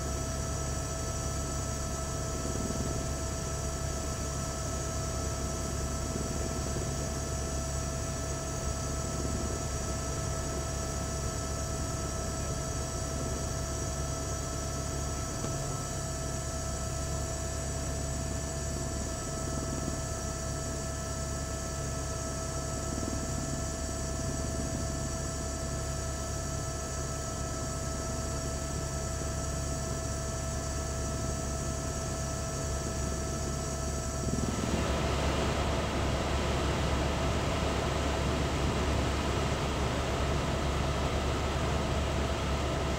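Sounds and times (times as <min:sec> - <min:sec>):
helicopter drone from aboard: 0:00.0 - 0:42.9.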